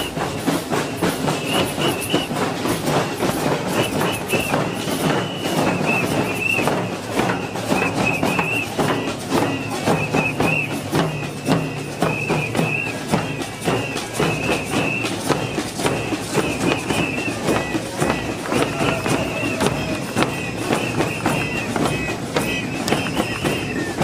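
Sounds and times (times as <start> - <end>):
frame drums in samba rhythm: 0.0 - 24.0
whistle trilling: 0.0 - 24.0.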